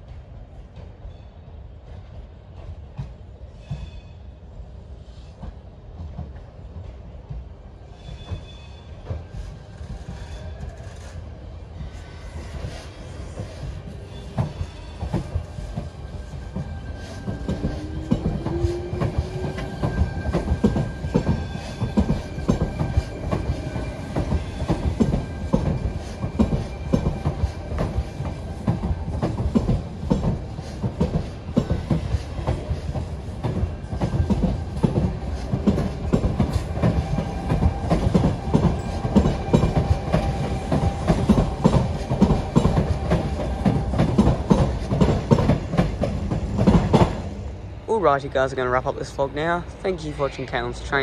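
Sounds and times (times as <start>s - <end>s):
train rumble: 0.0s - 51.0s
train wheels clacking over rail joints: 11.8s - 47.4s.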